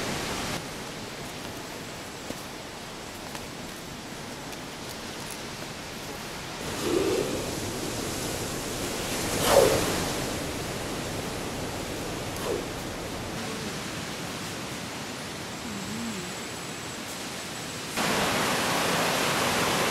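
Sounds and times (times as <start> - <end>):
rushing swells: 6.6 - 15.2
surf washing: 6.6 - 15.5, 18.0 - 19.9.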